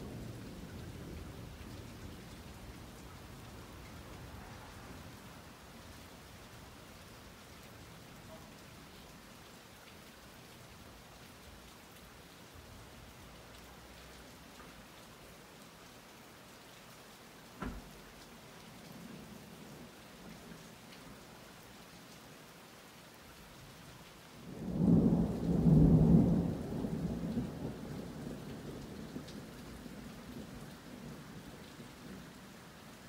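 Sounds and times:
steady rain falling: 0.0 - 33.0
thunder rumbling: 24.5 - 31.5.

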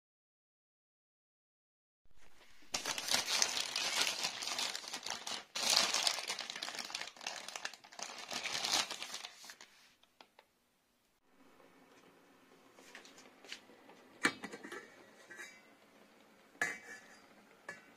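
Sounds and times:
plastic bag crinkling: 2.2 - 10.0.

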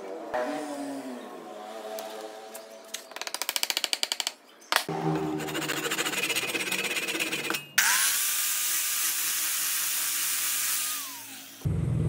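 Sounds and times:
angle grinder whining: 4.9 - 11.7
hand saw cutting wood: 5.2 - 9.6.

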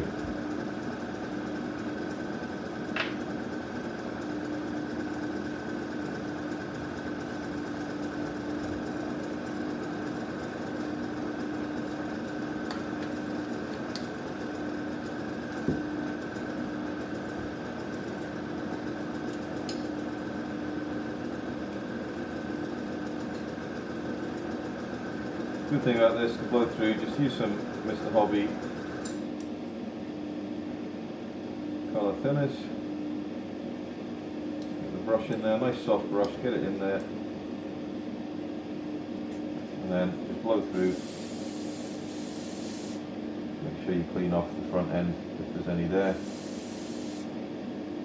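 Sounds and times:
small electric motor humming: 40.7 - 43.0, 46.0 - 47.3.

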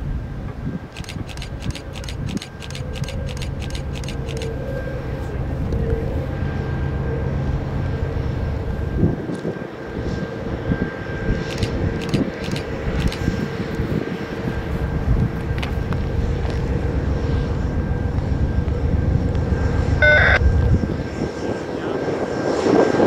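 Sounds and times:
diesel locomotive rumble: 0.5 - 9.2, 13.8 - 21.0
sharp clicks: 1.0 - 4.5, 11.5 - 13.3
faint steady whine: 14.5 - 21.0.

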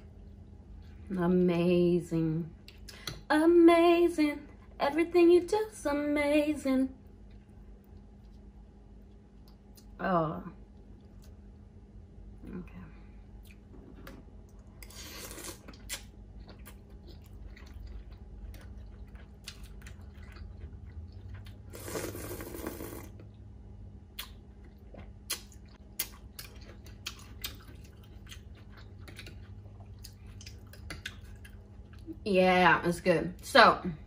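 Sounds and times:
chewing: 13.4 - 23.4, 24.2 - 32.2
noodles slurped: 14.8 - 16.0, 21.4 - 23.3.

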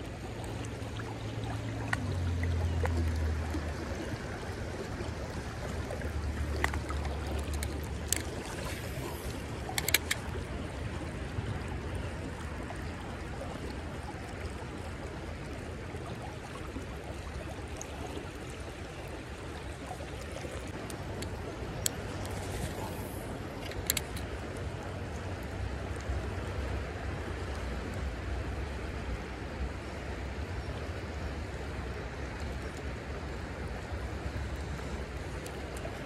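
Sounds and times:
water running over rocks: 0.0 - 27.4
light clicks: 9.7 - 10.4, 23.6 - 24.3.

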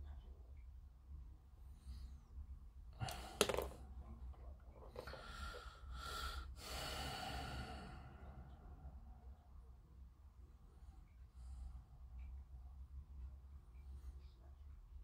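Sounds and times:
long breaths close to microphone: 5.0 - 9.4.

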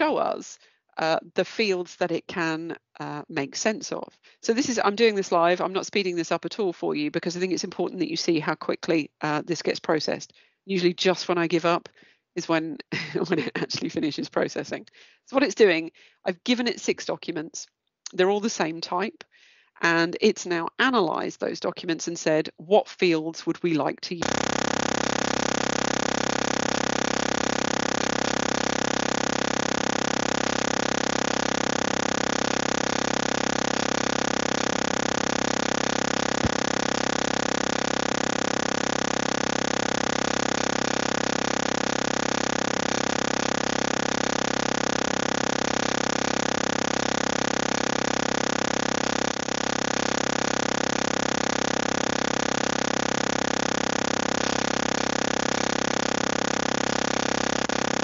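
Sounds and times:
electronic hiss with fixed tones: 24.2 - 58.0.

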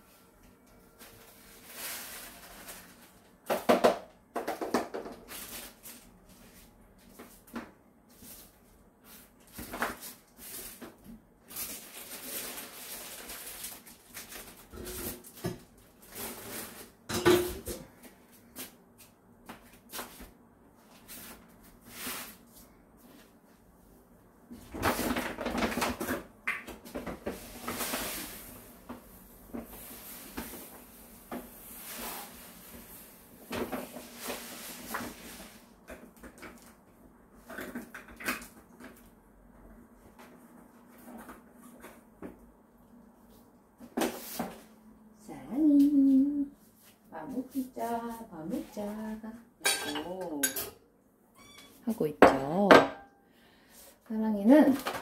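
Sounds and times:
plastic bag rustling: 0.8 - 3.5, 5.1 - 6.8, 8.2 - 17.1, 27.0 - 35.8.

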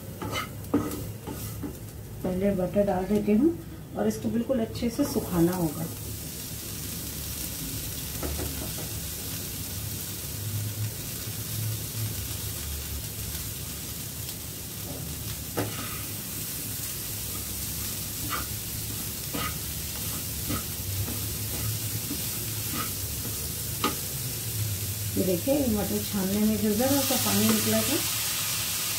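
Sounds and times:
food sizzling in a frying pan: 0.0 - 28.9
spatula tapping and scraping pan: 0.2 - 1.8, 14.9 - 16.0, 18.2 - 18.5, 19.3 - 24.1.

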